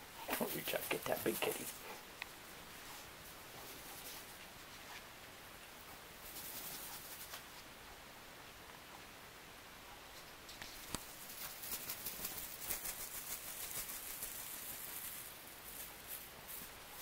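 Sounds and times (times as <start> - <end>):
kitten claws scratching on fleece: 6.2 - 7.6, 10.6 - 16.9.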